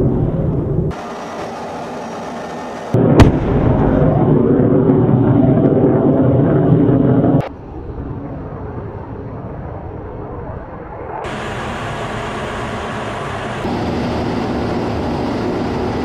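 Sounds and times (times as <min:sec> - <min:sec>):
jet in flight: 0:00.0 - 0:16.0
steady rushing noise: 0:00.0 - 0:16.0
bomb explosion: 0:03.0 - 0:10.4.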